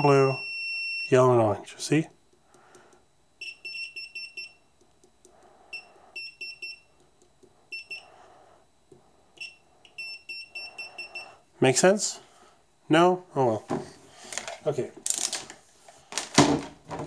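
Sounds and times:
multimeter beeping: 0:00.0 - 0:01.3, 0:03.4 - 0:04.7, 0:05.7 - 0:07.0, 0:07.7 - 0:08.2, 0:09.4 - 0:11.4.

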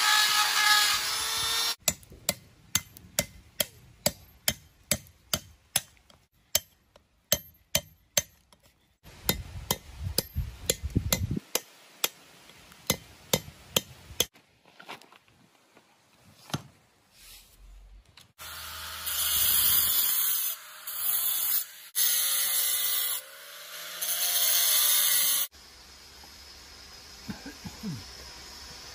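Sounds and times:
hammer striking steel chisel: 0:01.8 - 0:12.2, 0:12.9 - 0:14.3.

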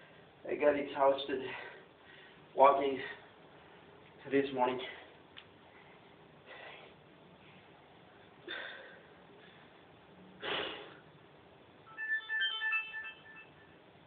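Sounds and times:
quick high tones: 0:11.9 - 0:14.0.

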